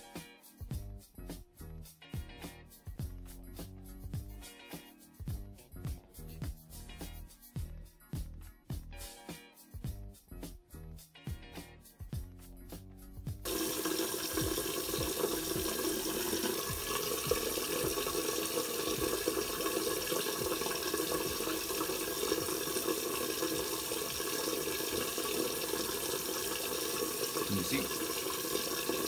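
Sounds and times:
tap water running into sink: 0:13.4 - 0:29.0.

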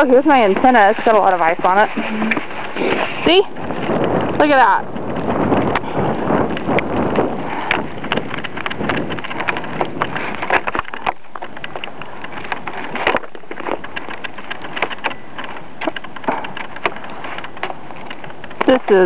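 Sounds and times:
ice crackling and ticking: 0:00.0 - 0:19.0.

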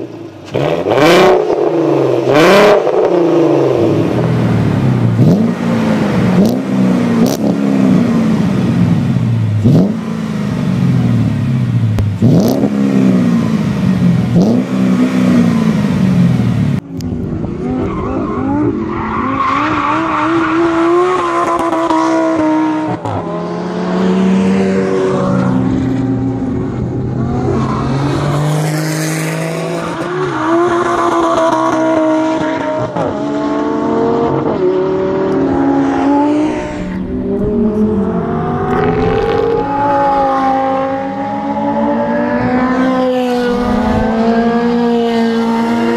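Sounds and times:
car engine revving: 0:00.0 - 0:45.9
car accelerating through gear changes: 0:12.0 - 0:45.9.

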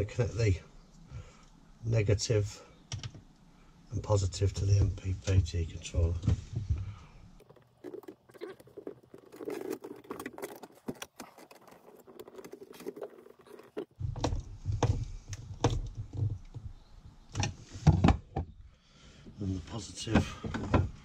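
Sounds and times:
cable ends and tools rattling: 0:07.4 - 0:16.7.

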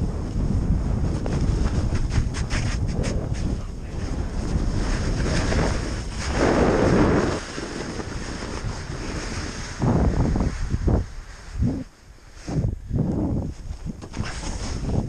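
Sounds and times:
wind on microphone: 0:00.0 - 0:15.0
snowboard hissing through powder: 0:04.0 - 0:12.8.

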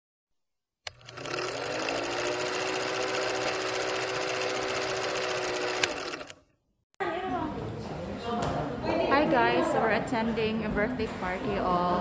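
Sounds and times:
film projector clattering: 0:00.9 - 0:06.4.

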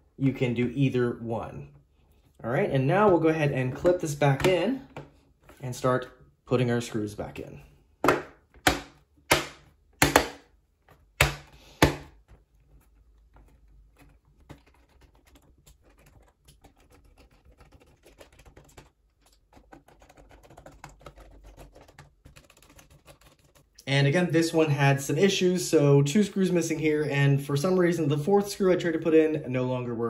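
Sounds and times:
faint handling and tapping: 0:12.2 - 0:23.8.

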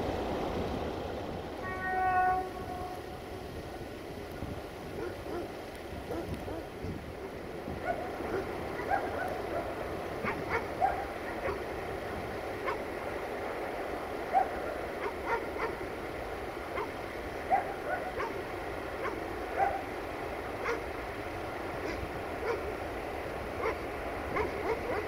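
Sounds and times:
steady background noise: 0:00.0 - 0:25.0
dog barking: 0:05.0 - 0:05.5, 0:06.1 - 0:06.7, 0:07.8 - 0:11.7, 0:12.6 - 0:12.8, 0:14.3 - 0:15.8, 0:16.7 - 0:18.4, 0:19.0 - 0:19.9, 0:20.6 - 0:20.9, 0:21.8 - 0:22.7, 0:23.6 - 0:25.0.

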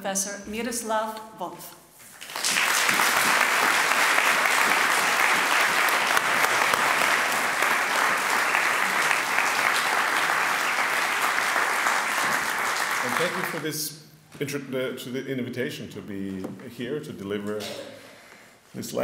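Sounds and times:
audience clapping: 0:02.2 - 0:13.7.

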